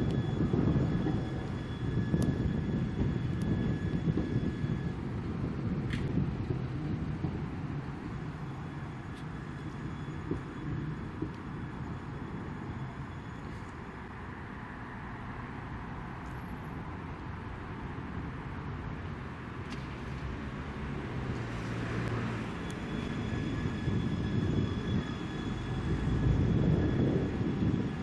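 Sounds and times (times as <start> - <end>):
electric tram rumbling on tracks: 0.0 - 28.0
faint high whine: 0.0 - 28.0.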